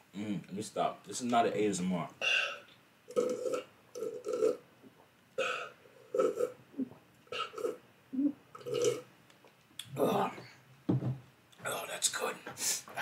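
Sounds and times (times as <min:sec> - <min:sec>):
person gulping a drink: 0:03.1 - 0:04.6, 0:08.5 - 0:09.0.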